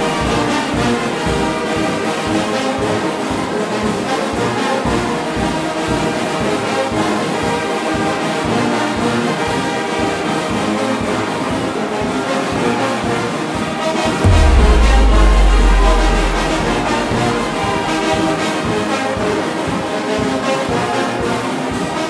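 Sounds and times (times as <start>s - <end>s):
brass fanfare over a beat: 14.2s - 18.2s
heavy deep bass: 14.2s - 18.2s.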